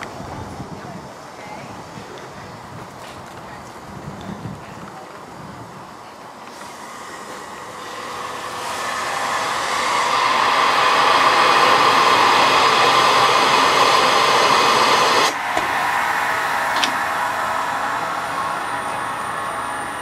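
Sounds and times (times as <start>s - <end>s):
compressed air hissing: 6.5s - 20.0s.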